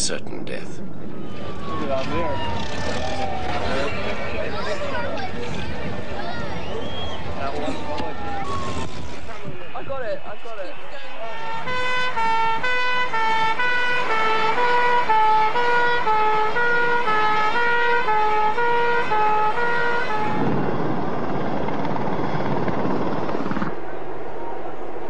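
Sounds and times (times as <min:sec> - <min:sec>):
fire engine two-tone siren: 0:01.2 - 0:05.0, 0:06.5 - 0:21.2
dense rushing noise: 0:20.1 - 0:25.0.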